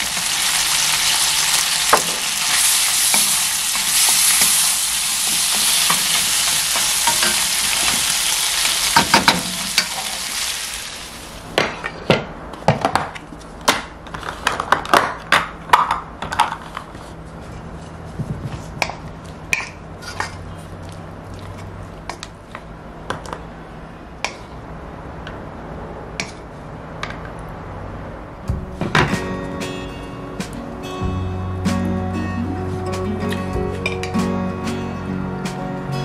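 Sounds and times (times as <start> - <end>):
food sizzling: 0.0 - 11.5.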